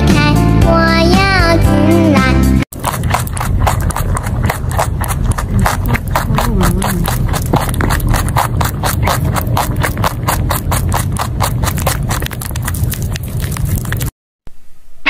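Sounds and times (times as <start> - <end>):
rabbit crunching carrot: 2.7 - 14.1.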